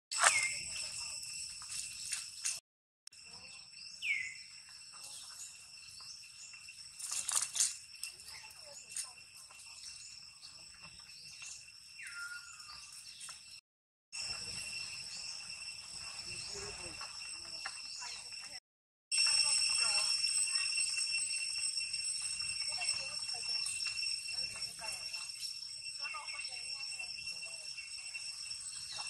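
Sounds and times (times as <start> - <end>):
insects droning: 0.2 - 2.6, 3.2 - 13.5, 14.2 - 29.0.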